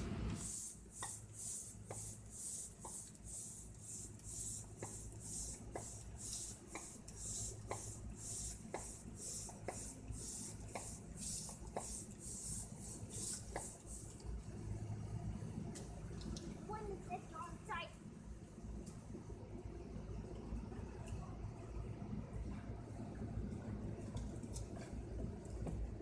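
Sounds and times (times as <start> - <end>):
hand air pump hissing: 0.4 - 14.2.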